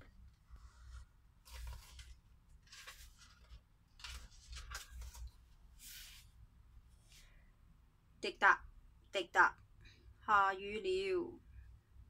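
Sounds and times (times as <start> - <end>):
book pages turning: 0.5 - 6.4.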